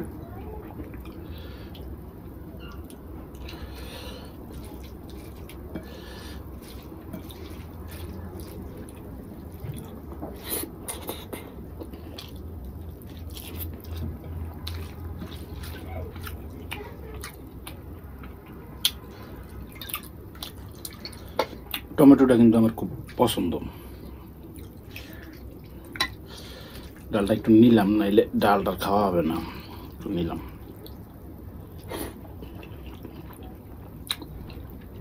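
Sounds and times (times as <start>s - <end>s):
low steady hum: 0.0s - 35.0s
wet chewing and mouth clicks: 2.6s - 22.0s, 24.4s - 26.2s, 30.6s - 35.0s.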